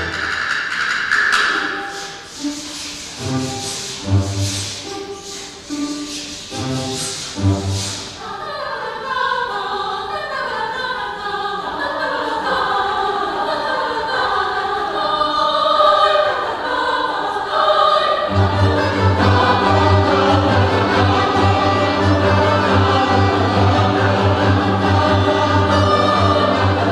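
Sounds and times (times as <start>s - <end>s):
plucked string orchestra: 0.0s - 8.6s, 17.5s - 26.9s
mixed choir singing: 3.0s - 26.9s.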